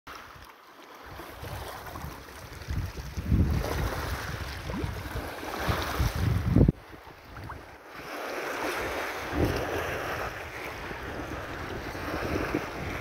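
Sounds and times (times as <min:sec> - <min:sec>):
small waves lapping at shore: 0:00.1 - 0:13.0
wind buffeting microphone: 0:01.3 - 0:07.7, 0:08.6 - 0:13.0.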